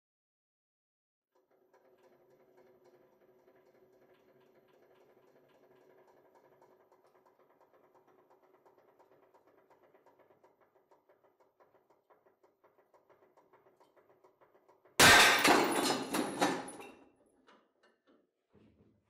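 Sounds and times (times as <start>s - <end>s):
bolt snapping with loud bang: 15.0s - 16.0s.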